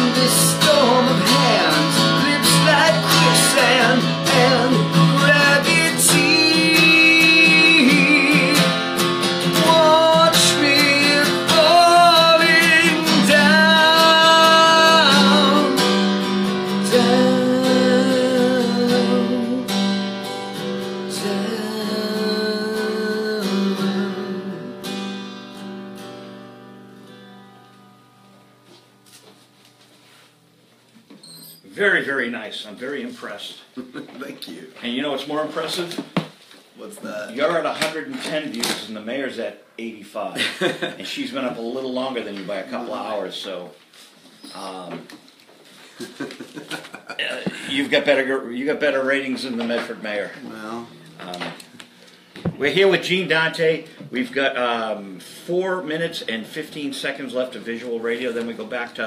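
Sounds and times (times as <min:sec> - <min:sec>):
man singing: 0:00.0 - 0:19.9, 0:21.0 - 0:24.8
strummed acoustic guitar: 0:00.0 - 0:30.6.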